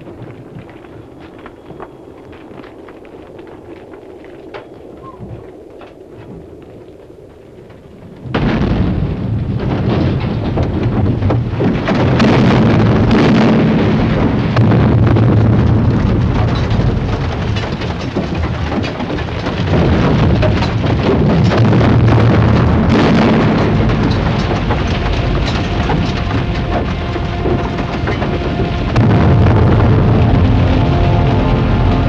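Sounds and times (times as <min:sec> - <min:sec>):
roaring crackling fire: 0:00.0 - 0:32.0
loud explosive blast: 0:08.3 - 0:10.2, 0:11.8 - 0:17.5, 0:19.6 - 0:32.0.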